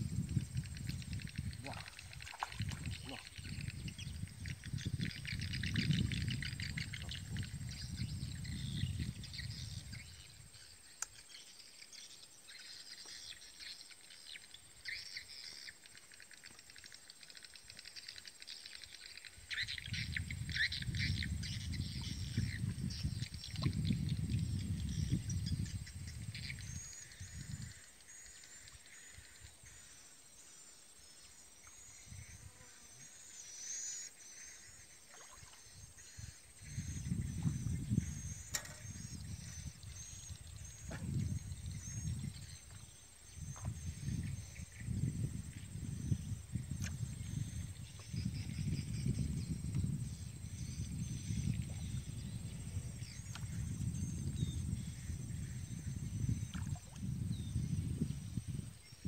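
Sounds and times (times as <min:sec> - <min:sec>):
insects buzzing: 0:26.3 - 0:56.5
sharp click: 0:38.5 - 0:38.9.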